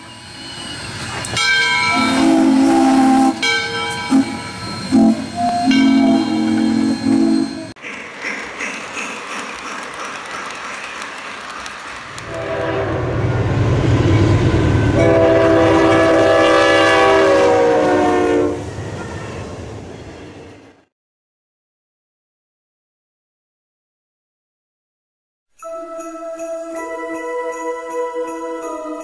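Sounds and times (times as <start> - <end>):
steam whistle: 0.0 - 7.8, 12.3 - 13.1, 14.9 - 18.7
train rolling by: 0.0 - 20.9
locomotive air horn chord: 1.8 - 7.8, 12.3 - 13.2, 14.9 - 18.7.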